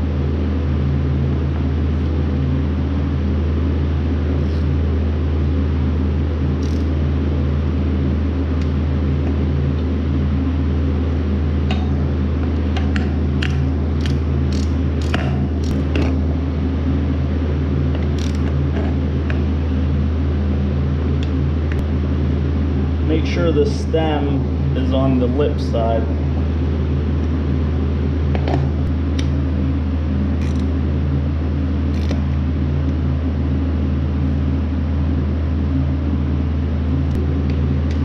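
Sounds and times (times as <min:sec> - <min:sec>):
steady low hum: 0:00.0 - 0:38.0
socket ratchet clicking: 0:13.4 - 0:15.8, 0:18.1 - 0:18.5, 0:30.4 - 0:30.7.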